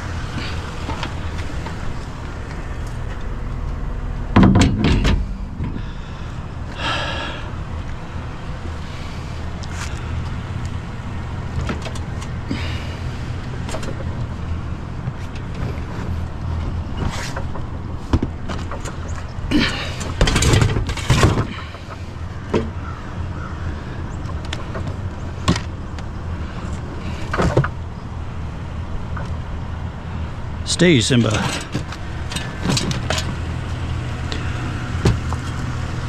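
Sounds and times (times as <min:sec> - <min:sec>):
vehicle engine idling: 0:00.0 - 0:36.0
clatter of items being handled: 0:17.0 - 0:22.7.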